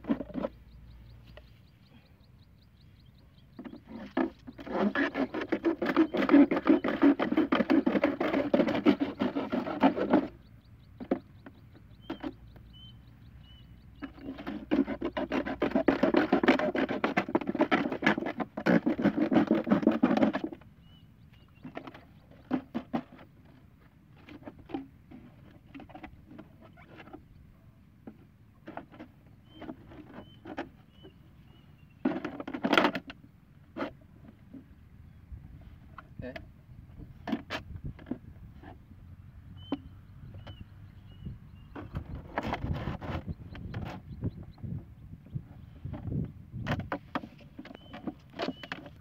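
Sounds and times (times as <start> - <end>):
plastic bottle scraping and rattling: 0.0 - 0.7, 3.5 - 10.4, 11.0 - 12.4, 14.0 - 20.7, 21.4 - 27.2, 28.0 - 34.7, 37.0 - 38.8, 41.6 - 44.8, 45.4 - 49.0.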